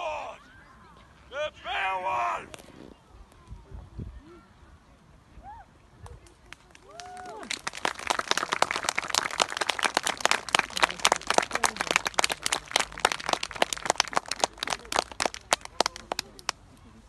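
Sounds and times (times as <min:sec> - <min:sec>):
crowd applauding: 0:06.8 - 0:16.6.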